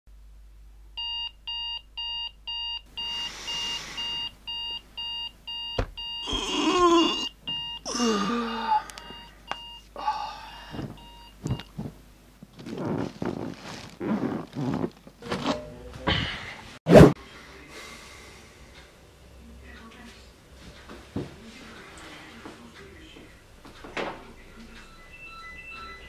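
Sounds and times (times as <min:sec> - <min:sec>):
electronic alarm beeping: 0:01.0 - 0:06.4, 0:07.1 - 0:07.8, 0:08.4 - 0:09.8, 0:11.0 - 0:11.7, 0:24.7 - 0:26.0
rustling: 0:11.8 - 0:15.6.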